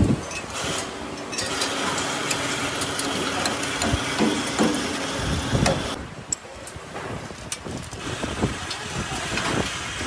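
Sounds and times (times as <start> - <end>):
workshop hum: 0.0 - 10.0
metal parts knocking and clanking: 0.1 - 5.0.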